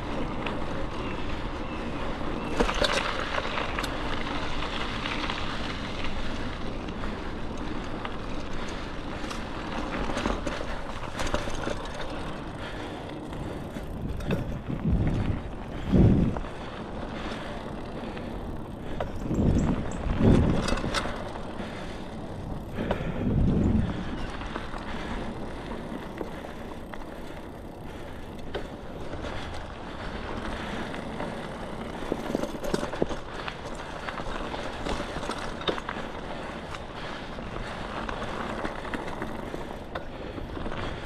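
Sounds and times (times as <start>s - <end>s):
bike rattles and clicks: 0.0s - 41.0s
tyre and wind noise: 0.0s - 41.0s
heavy low rumbles: 13.4s - 16.8s.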